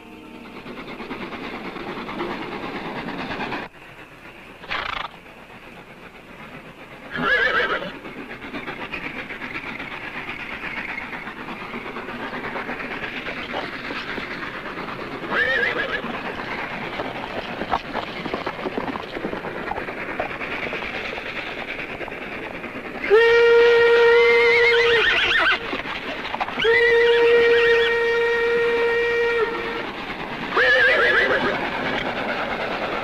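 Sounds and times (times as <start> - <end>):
train rumbling and clattering: 0.0 - 33.0
horses whinnying: 4.7 - 5.1, 7.1 - 8.0, 15.3 - 16.2, 24.8 - 25.8, 30.5 - 31.6
train whistle: 23.0 - 25.8, 26.6 - 31.6.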